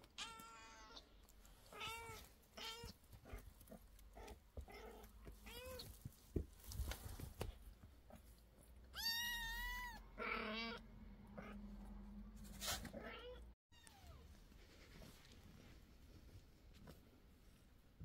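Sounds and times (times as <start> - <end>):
kitten meowing: 8.9 - 10.8.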